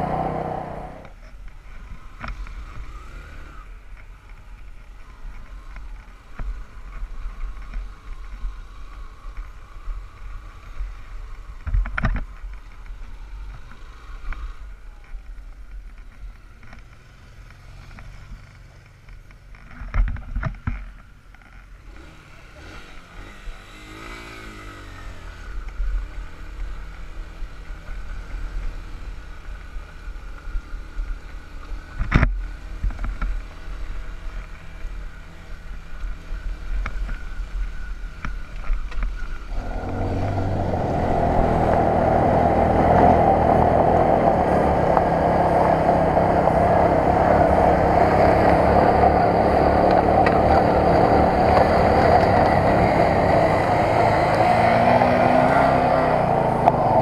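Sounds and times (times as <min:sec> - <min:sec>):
motorcycle engine running: 0:00.0 - 0:03.0, 0:24.8 - 0:57.0.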